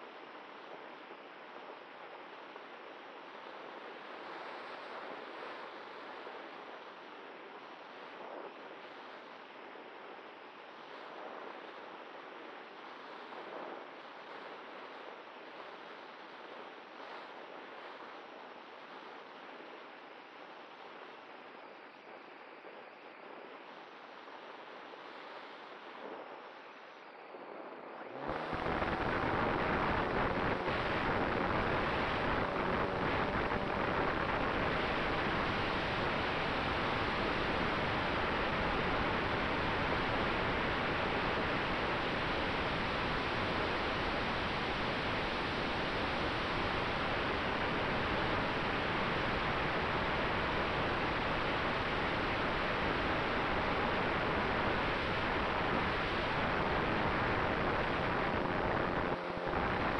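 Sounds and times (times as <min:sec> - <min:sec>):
airflow rushing over microphone: 0:25.3 - 0:59.9.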